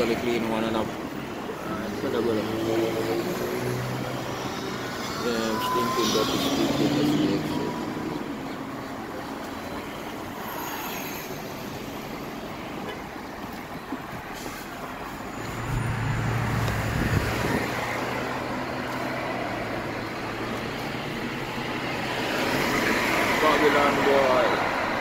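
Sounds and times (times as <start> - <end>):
traffic passing on a street: 0.0 - 25.0
car engine hum and road noise: 11.7 - 25.0.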